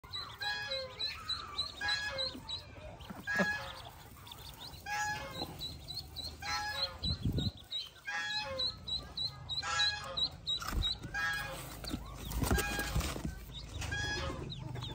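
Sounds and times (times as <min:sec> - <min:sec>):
ducklings peeping: 0:00.0 - 0:14.9
duck calling: 0:00.2 - 0:02.6, 0:03.2 - 0:04.0, 0:04.8 - 0:07.2, 0:08.0 - 0:11.6.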